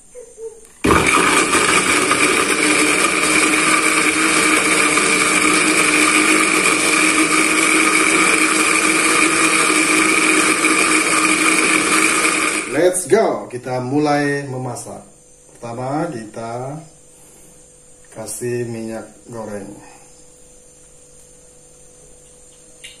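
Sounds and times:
electric blender grinding: 0:00.8 - 0:13.0.

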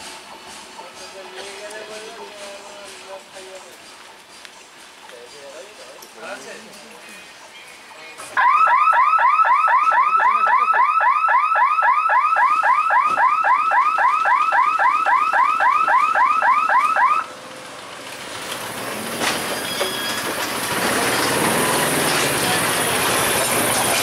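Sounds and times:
electronic warning siren chirping: 0:08.4 - 0:17.3.

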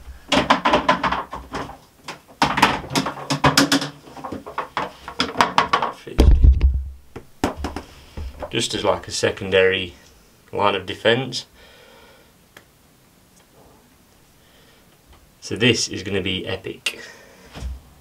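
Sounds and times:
plastic clicks and knocks: 0:00.3 - 0:08.6
heavy low thump of tub: 0:06.2 - 0:07.0.

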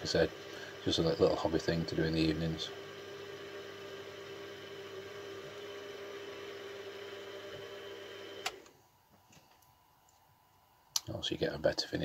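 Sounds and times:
drill bit cutting metal: 0:00.0 - 0:04.3
mill spindle motor running: 0:00.0 - 0:08.6.

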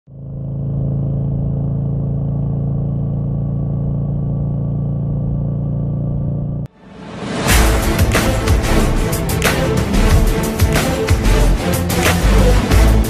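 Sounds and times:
engine running with low hum: 0:00.1 - 0:06.7.

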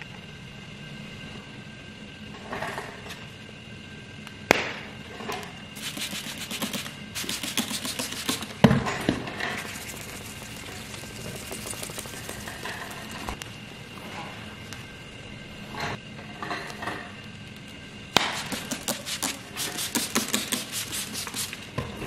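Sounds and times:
water spray hissing squirts: 0:05.8 - 0:08.5, 0:09.5 - 0:13.2.

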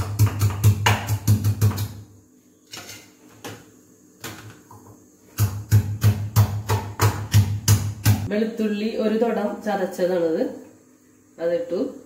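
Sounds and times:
stone pestle pounding garlic: 0:00.0 - 0:01.9, 0:05.4 - 0:08.3.

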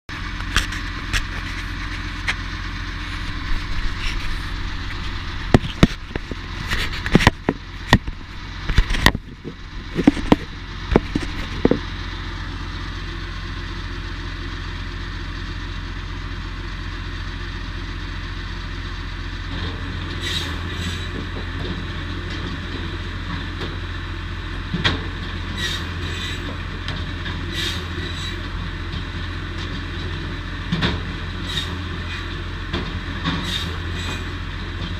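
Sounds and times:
sharp knocks and clunks: 0:04.9 - 0:06.4, 0:07.0 - 0:11.8
firewood saw humming: 0:33.4 - 0:34.4.

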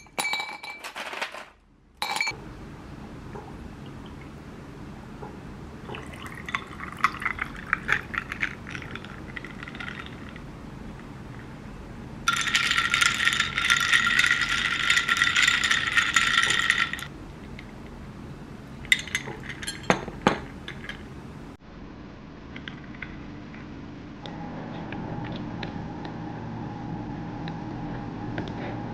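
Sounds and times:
milk poured over ice: 0:05.9 - 0:10.4
ice cubes clinking against glass: 0:06.2 - 0:10.3, 0:12.3 - 0:17.1, 0:18.9 - 0:21.0
straw clinking in glass: 0:18.9 - 0:21.0.

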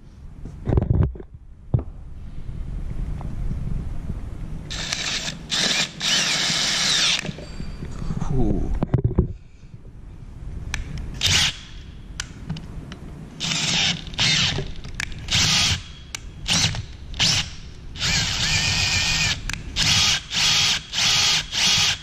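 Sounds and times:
electric drill drilling into metal: 0:04.7 - 0:07.3, 0:11.2 - 0:11.7, 0:13.4 - 0:14.6, 0:15.3 - 0:22.0.

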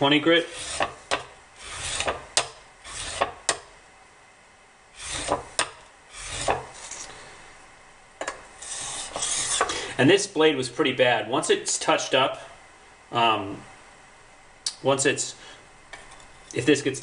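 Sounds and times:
blade rasping on sharpening stone: 0:00.4 - 0:03.6, 0:05.0 - 0:07.1, 0:08.6 - 0:09.7.

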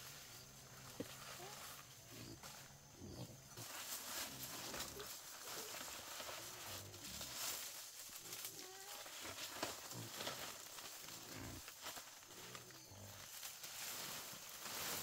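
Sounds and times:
pigs grunting: 0:01.2 - 0:10.5, 0:11.1 - 0:13.3.

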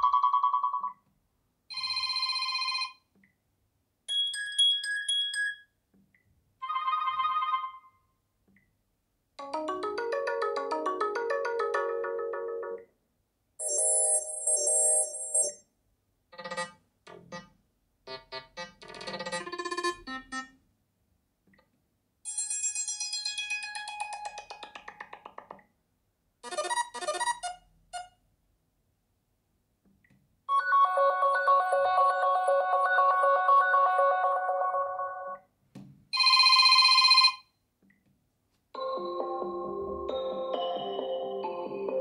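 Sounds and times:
phone ringtone tunes: 0:06.6 - 0:08.0, 0:09.4 - 0:12.8, 0:13.6 - 0:15.6, 0:30.5 - 0:35.4, 0:36.2 - 0:37.4, 0:38.8 - 0:42.0.

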